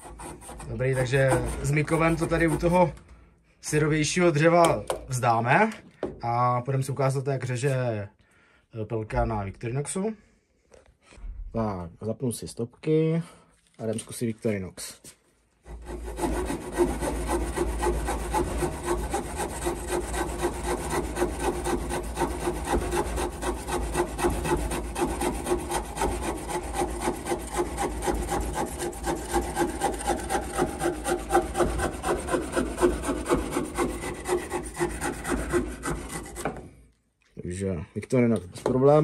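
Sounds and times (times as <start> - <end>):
saw cutting a branch: 0.0 - 2.9, 15.7 - 36.7.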